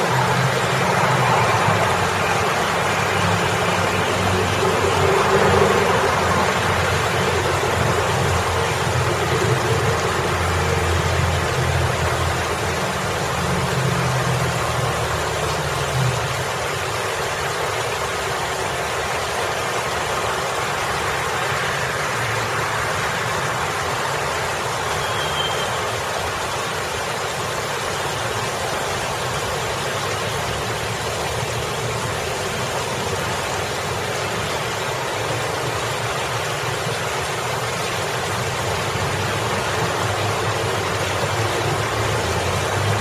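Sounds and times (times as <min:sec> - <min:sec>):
road traffic rumble: 0:00.0 - 0:43.0.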